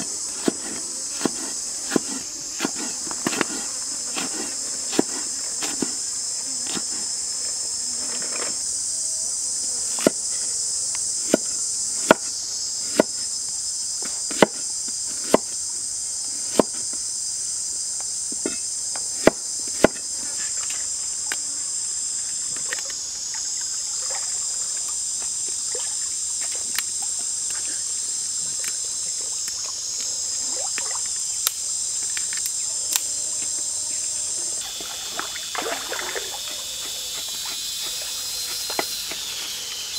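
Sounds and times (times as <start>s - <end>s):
insects droning: 0.0s - 39.9s
knife chopping on wooden board: 0.4s - 6.0s, 14.3s - 14.6s, 15.2s - 15.5s, 19.2s - 20.0s.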